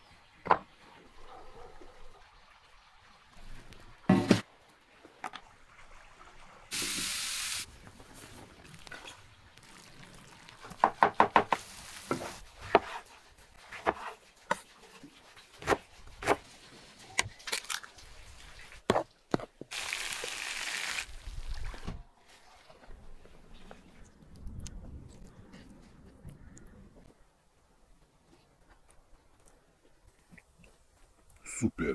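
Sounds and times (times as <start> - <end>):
sizzling: 6.7 - 13.8, 19.7 - 21.6.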